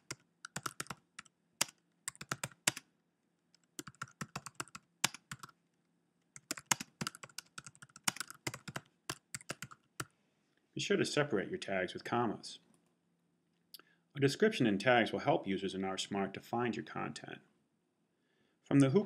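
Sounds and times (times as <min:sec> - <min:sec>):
typing on computer keyboard: 0:00.0 - 0:02.8, 0:03.6 - 0:05.6, 0:06.4 - 0:10.1.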